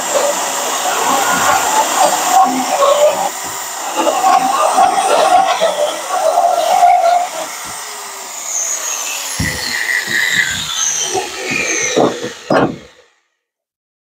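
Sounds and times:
electric drill cutting metal: 0:00.0 - 0:13.2
metal clanks and knocks: 0:09.4 - 0:13.0.

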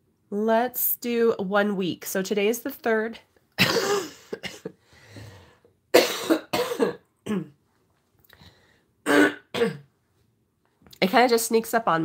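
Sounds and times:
woman coughing: 0:03.6 - 0:04.8, 0:05.9 - 0:07.6, 0:09.1 - 0:09.9
breathy intake: 0:04.8 - 0:05.7.

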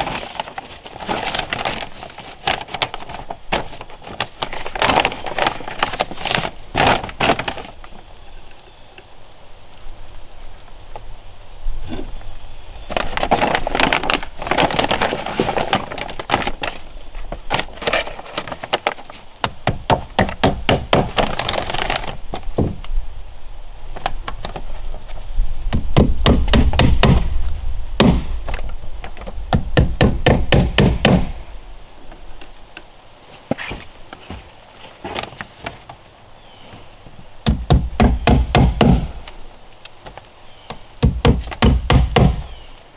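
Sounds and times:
paper crinkling and rustling: 0:00.0 - 0:08.0, 0:12.8 - 0:19.3, 0:21.1 - 0:22.6, 0:33.3 - 0:36.0.

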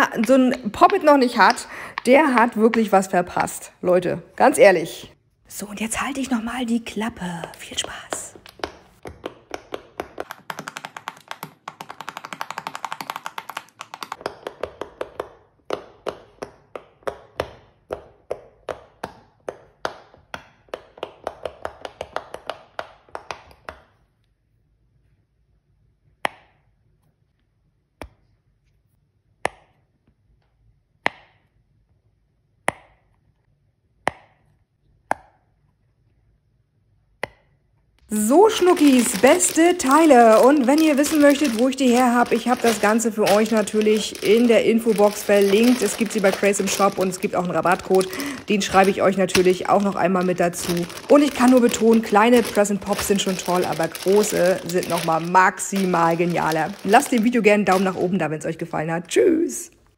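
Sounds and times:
fidget toy bubbles popping: 0:07.4 - 0:16.8.

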